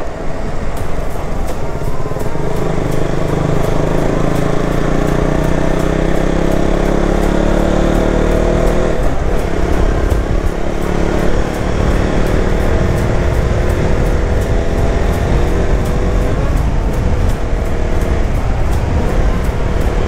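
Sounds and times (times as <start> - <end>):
motorcycle engine running: 0.0 - 20.0
wind rushing: 7.8 - 20.0.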